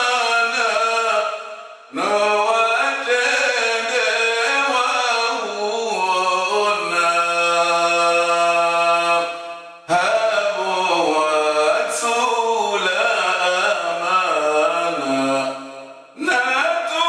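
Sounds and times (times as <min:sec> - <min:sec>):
man chanting: 0:00.0 - 0:17.0.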